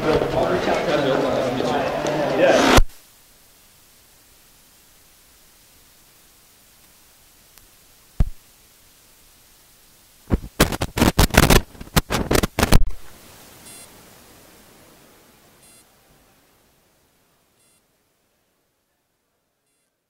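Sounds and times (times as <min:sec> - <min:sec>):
loud crackles and pops: 0:00.0 - 0:14.8
steady faint hiss: 0:00.0 - 0:20.0.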